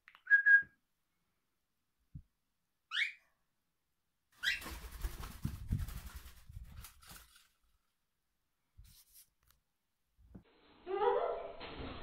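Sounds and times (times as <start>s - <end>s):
fluttering wingbeats: 4.4s - 7.6s.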